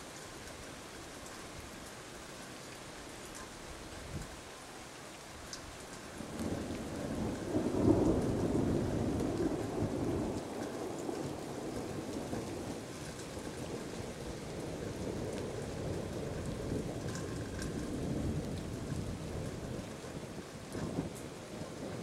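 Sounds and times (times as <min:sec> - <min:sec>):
steady rain: 0:00.0 - 0:22.0
thunder rumbling: 0:06.2 - 0:22.0.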